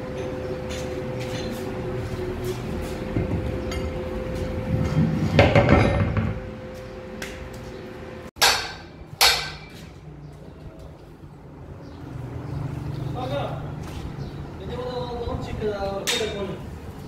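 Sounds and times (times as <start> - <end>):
metal flywheel scraping on concrete: 0.8 - 6.4
sharp ringing metal knocks: 8.4 - 9.9.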